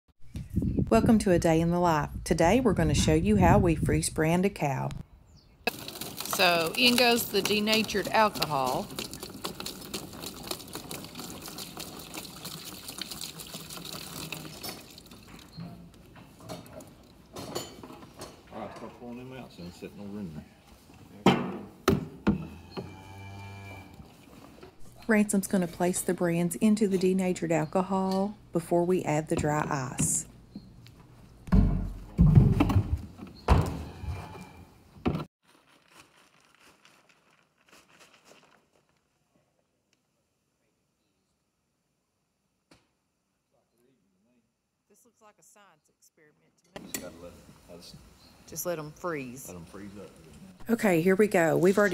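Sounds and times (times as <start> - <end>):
faint crackles of poured dry ice: 5.7 - 15.1, 35.5 - 39.0
liquid splashing into cooler: 5.7 - 15.6.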